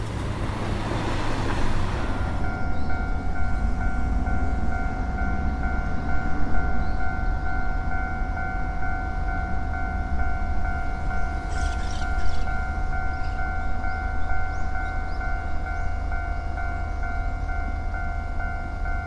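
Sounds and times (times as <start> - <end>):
level crossing warning bell: 1.6 - 19.0.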